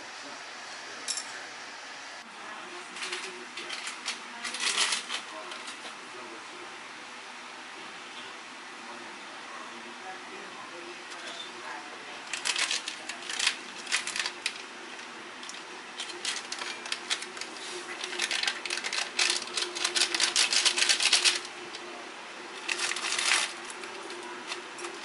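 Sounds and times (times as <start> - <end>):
foil packaging crinkling: 3.0 - 5.8, 12.1 - 25.0.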